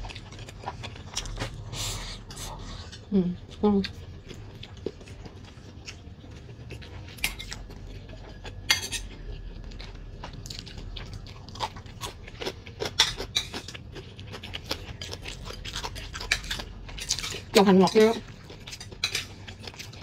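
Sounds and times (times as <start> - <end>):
soft chewing: 0.0 - 20.0
chopsticks and spoon clinking bowl: 6.7 - 14.3, 14.9 - 20.0.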